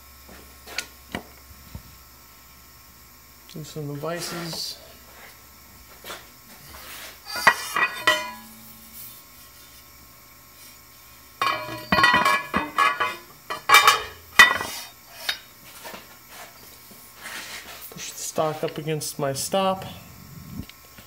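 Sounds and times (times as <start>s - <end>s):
metal clanks and clinks: 7.4s - 9.0s, 11.4s - 14.7s.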